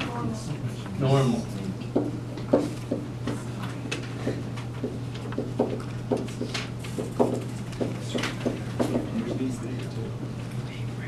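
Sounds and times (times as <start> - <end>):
steady low hum: 0.0 - 11.0
pen tapping on whiteboard: 1.9 - 3.0, 4.3 - 9.5.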